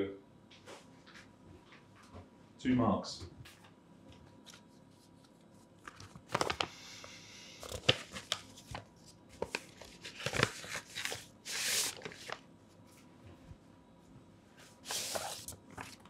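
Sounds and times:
paper crackling and rustling: 4.4s - 6.8s, 7.6s - 12.4s, 14.8s - 16.0s.

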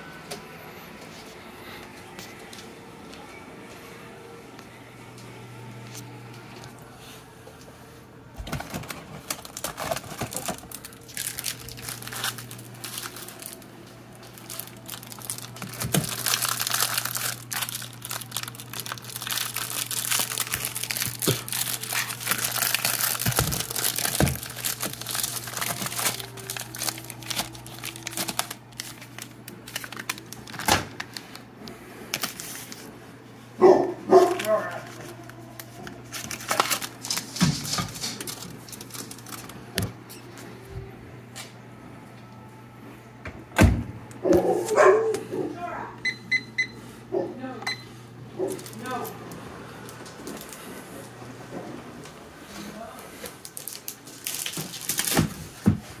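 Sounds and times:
packaging crinkling: 8.4s - 32.9s, 34.1s - 39.8s, 48.4s - 49.0s, 49.8s - 50.7s, 53.2s - 56.0s.

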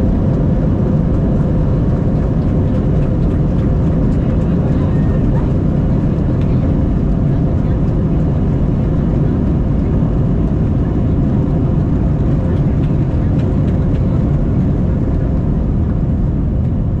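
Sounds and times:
jet engines and wheels rumbling: 0.0s - 17.0s.

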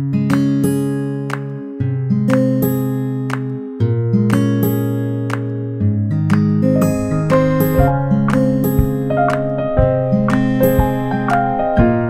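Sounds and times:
plucked melody notes: 0.0s - 12.0s
held bass tones: 6.7s - 12.0s.

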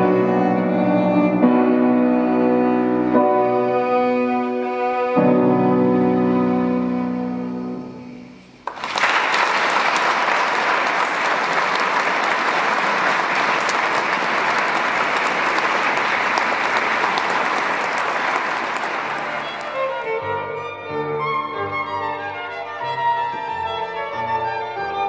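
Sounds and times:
audience applauding: 8.6s - 20.1s.

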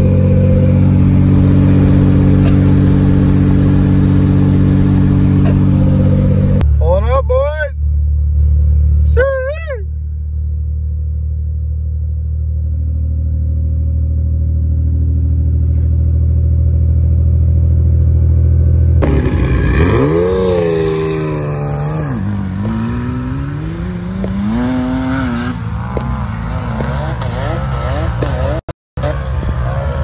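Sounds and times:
sand buggies revving: 0.0s - 7.7s, 19.0s - 30.0s
vehicle cruising on highway: 0.0s - 30.0s.

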